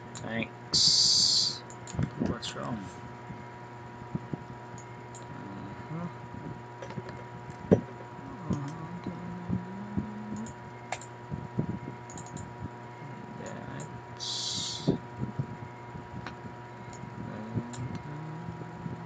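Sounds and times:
low wavering hum: 0.0s - 19.0s
steady electrical hum: 0.0s - 19.0s
computer mouse clicks: 10.4s - 11.1s, 12.1s - 12.5s.

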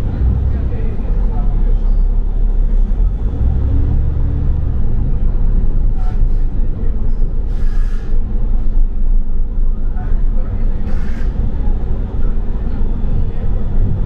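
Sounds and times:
bus engine rumble: 0.0s - 14.0s
air hiss: 7.5s - 8.2s.

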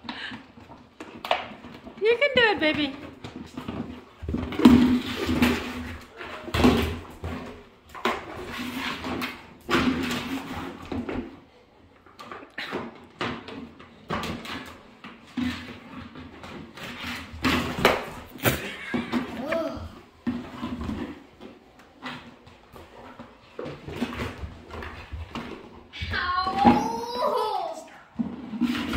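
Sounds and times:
plastic bucket scraping on floor: 0.2s - 11.5s, 12.2s - 27.5s, 28.2s - 28.9s.

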